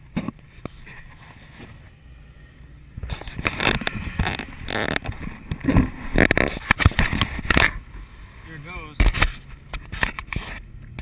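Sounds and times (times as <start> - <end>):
camera rubbing and knocking on mount: 3.0 - 7.8, 9.0 - 10.6.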